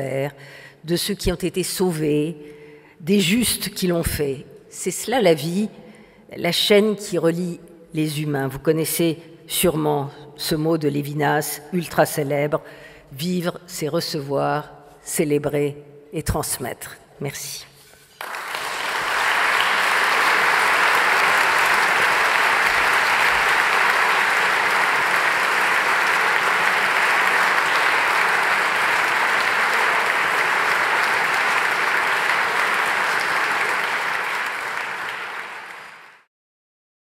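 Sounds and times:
audience applauding: 0:18.2 - 0:36.3.

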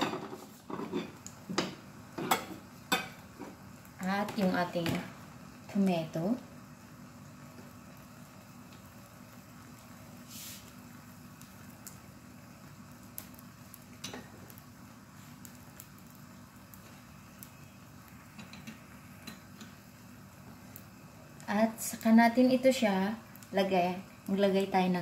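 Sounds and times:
egg sizzling in a frying pan: 0:00.0 - 0:25.0
small crackles and pops: 0:00.4 - 0:25.0
brief hiss: 0:10.2 - 0:10.8.

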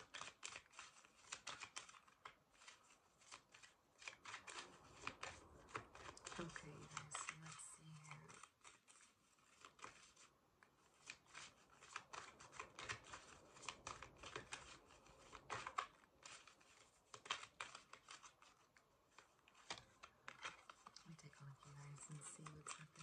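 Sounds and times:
cards shuffled by hand: 0:00.0 - 0:23.0.

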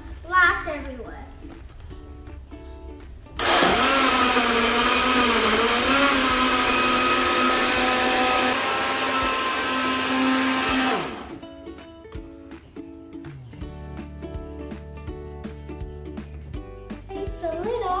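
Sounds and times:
blender motor whining: 0:03.4 - 0:11.4.

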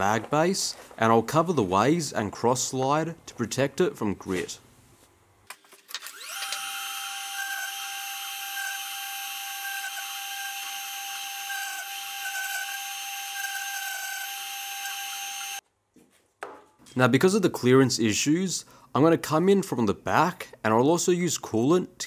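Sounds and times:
grinder spindle whining: 0:06.0 - 0:15.6.

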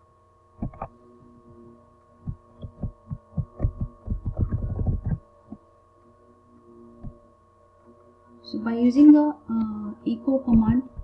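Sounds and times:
electrical hum: 0:00.0 - 0:11.0
dull knocks and thumps: 0:02.2 - 0:05.2.

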